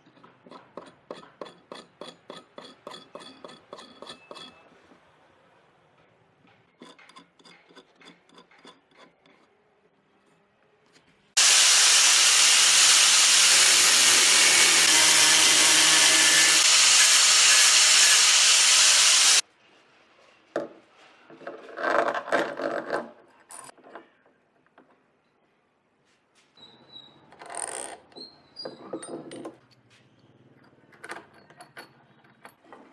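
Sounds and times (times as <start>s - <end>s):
power tool running on wood: 11.4s - 19.4s.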